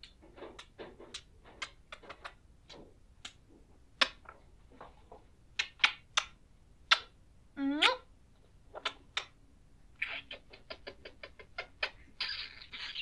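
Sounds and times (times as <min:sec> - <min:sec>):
smacking kisses: 0:00.0 - 0:03.4, 0:04.0 - 0:04.3, 0:05.6 - 0:07.2, 0:08.7 - 0:09.4.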